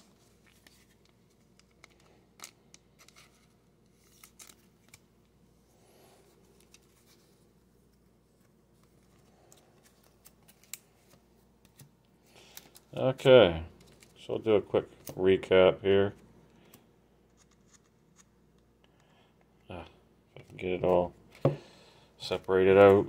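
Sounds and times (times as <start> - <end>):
cards and plastic sleeves scraping: 0.0 - 5.1, 6.2 - 18.3.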